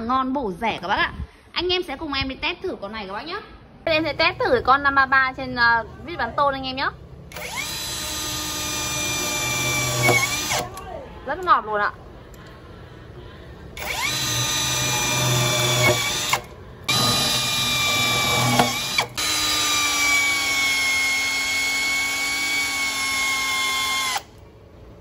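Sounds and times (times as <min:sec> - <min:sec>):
cordless drill driving screws: 0:07.3 - 0:10.7, 0:13.8 - 0:24.4.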